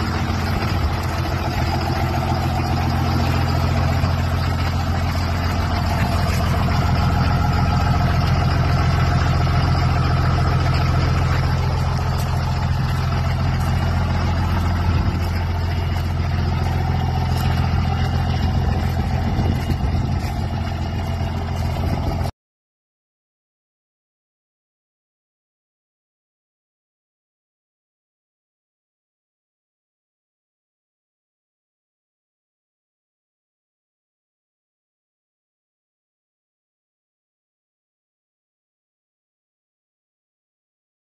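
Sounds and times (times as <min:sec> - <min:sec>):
diesel engine idling: 0:00.0 - 0:22.3.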